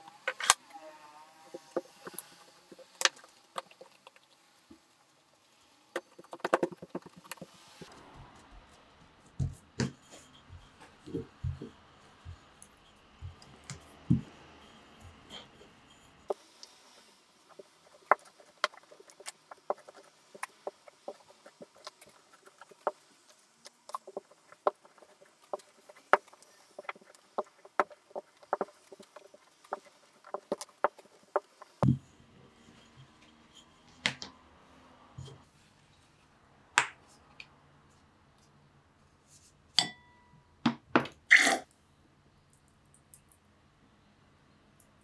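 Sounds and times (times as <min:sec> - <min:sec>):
rolling pin clicking and tapping: 0:06.0 - 0:07.5, 0:23.9 - 0:32.0.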